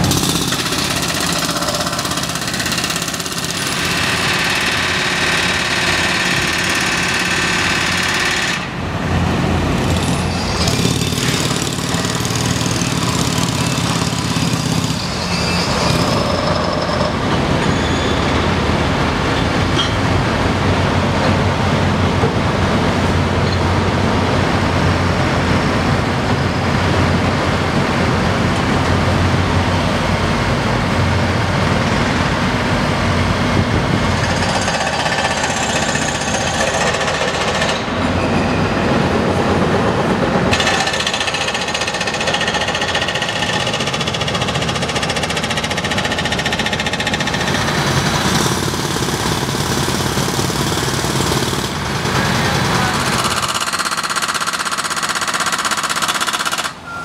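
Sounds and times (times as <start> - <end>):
jackhammer breaking concrete: 0.0 - 8.8, 9.8 - 17.2, 34.2 - 37.9, 40.4 - 56.8
diesel construction machinery rumbling: 0.0 - 57.0.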